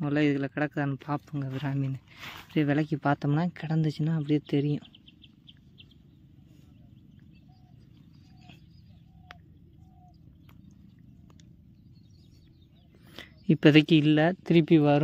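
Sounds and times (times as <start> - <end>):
steady low hum: 0.0 - 15.0
soft animal calls: 4.8 - 11.4.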